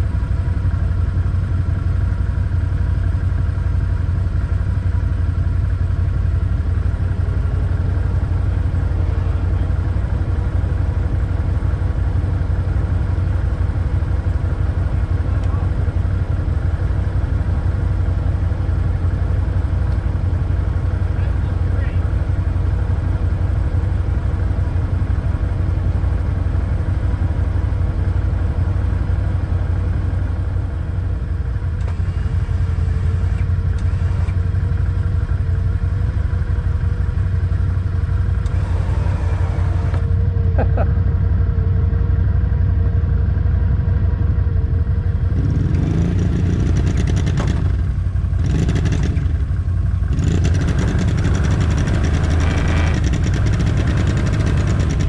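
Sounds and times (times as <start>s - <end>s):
atv engine revving: 37.6s - 40.9s, 45.1s - 55.0s.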